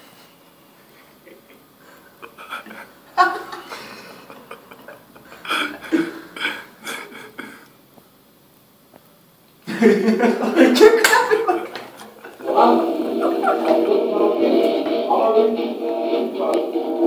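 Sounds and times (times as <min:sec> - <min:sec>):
bursts of laughter: 0:01.2 - 0:07.6, 0:09.7 - 0:14.4
indistinct voices: 0:01.2 - 0:07.6, 0:10.8 - 0:17.0.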